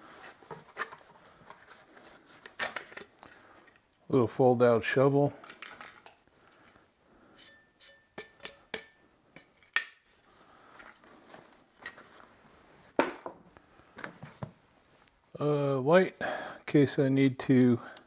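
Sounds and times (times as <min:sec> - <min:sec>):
metal shovel clicks and clinks: 0:07.4 - 0:11.1.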